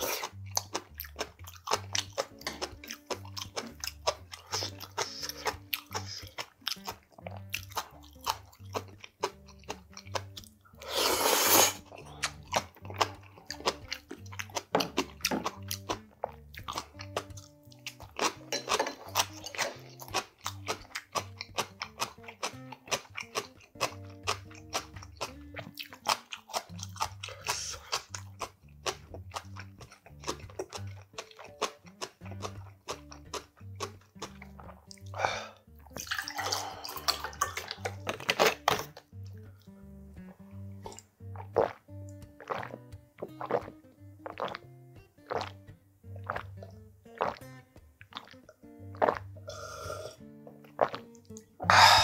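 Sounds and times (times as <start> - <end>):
chewing with crisp crunches: 0.0 - 45.6, 46.2 - 52.0
background music with bass line: 0.0 - 52.0.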